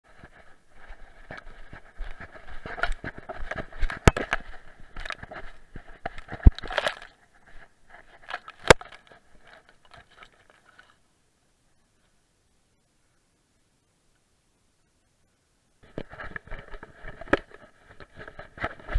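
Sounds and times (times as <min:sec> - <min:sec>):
grass scraping against camera: 0:00.1 - 0:11.1, 0:15.8 - 0:18.9
camera being bumped: 0:08.3 - 0:09.0.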